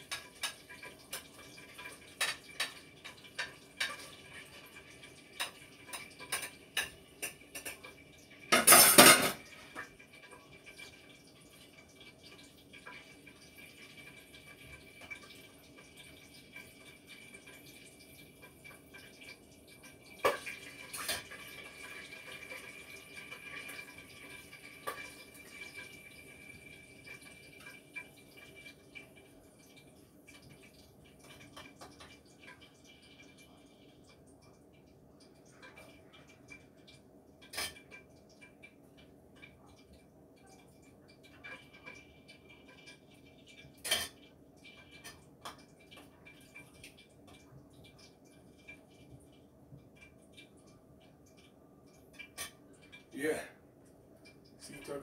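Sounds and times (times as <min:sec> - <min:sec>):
utensils clinking against pots: 0:05.4 - 0:09.8, 0:37.4 - 0:38.0, 0:43.8 - 0:44.2.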